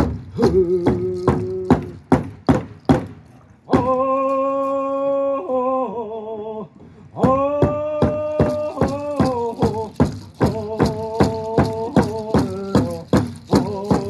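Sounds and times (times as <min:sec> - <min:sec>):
hand drum beating: 0:00.0 - 0:03.2, 0:07.6 - 0:14.0.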